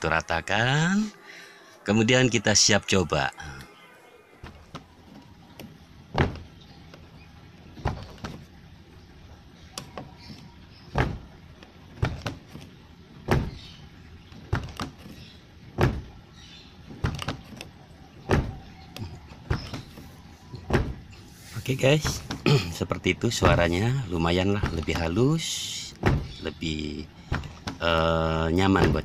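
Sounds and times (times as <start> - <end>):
car door shutting: 4.4 - 7.1, 9.8 - 13.7, 14.3 - 16.2, 18.2 - 22.5, 25.9 - 26.5.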